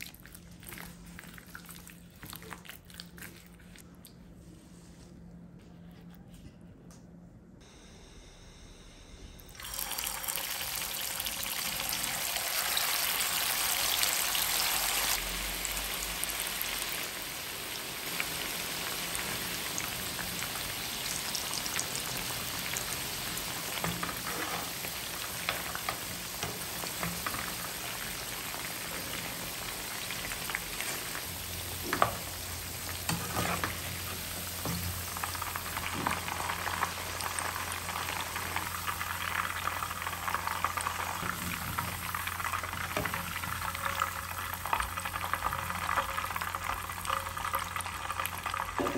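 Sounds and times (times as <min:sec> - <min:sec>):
chicken sizzling in oil: 0:09.6 - 0:48.9.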